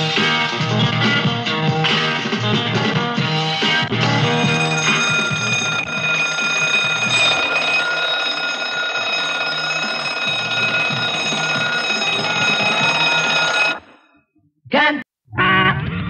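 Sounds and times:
alarm bell ringing: 4.0s - 14.2s.

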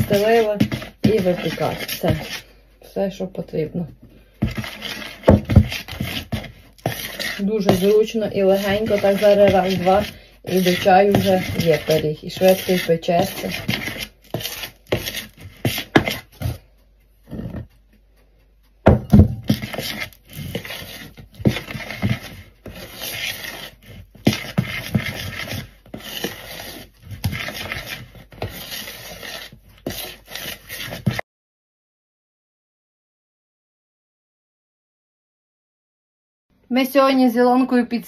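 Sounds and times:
metal spoon stirring batter: 0.0s - 16.7s, 19.1s - 31.2s.

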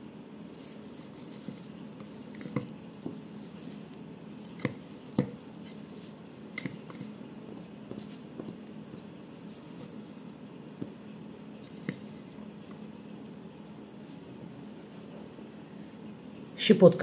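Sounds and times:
faint steady hum: 0.0s - 17.0s
basil leaves rustling: 0.4s - 13.8s.

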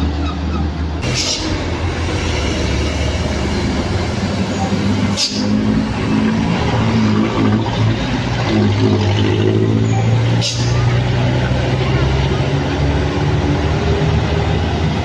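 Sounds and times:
truck diesel engine under load: 0.0s - 15.0s.

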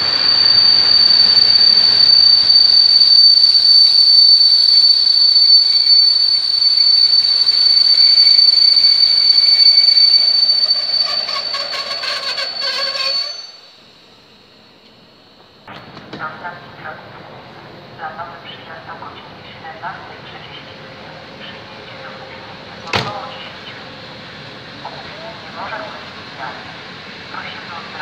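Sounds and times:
train brakes squealing: 0.0s - 15.6s
clattering squeaks: 0.3s - 13.7s.

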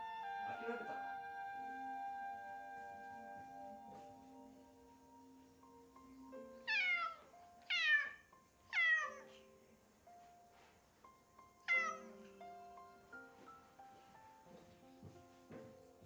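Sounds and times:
soft background music: 0.0s - 16.0s
cat meowing loudly: 6.7s - 9.3s, 11.7s - 12.1s.

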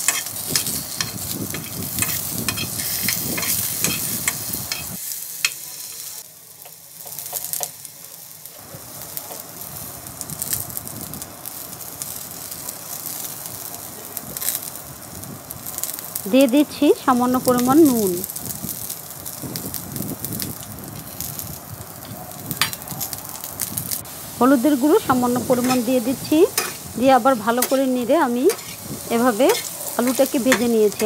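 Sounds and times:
spatula scraping a pan: 0.0s - 5.0s, 26.5s - 26.8s, 28.5s - 31.0s
food sizzling in hot oil: 0.0s - 31.0s.

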